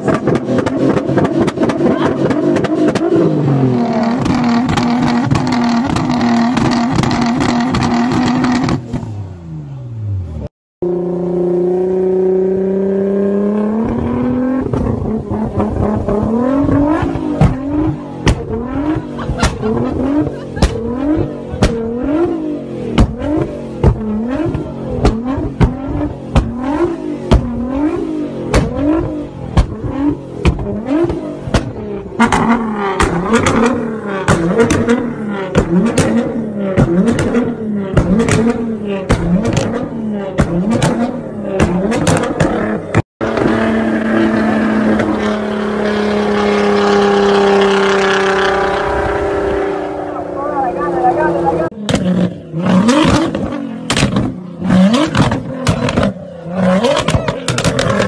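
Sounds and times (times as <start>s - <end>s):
exhaust popping and crackling: 0.0s - 9.1s, 13.5s - 58.0s
car engine revving: 0.0s - 58.0s
sharp exhaust bangs: 13.5s - 58.0s.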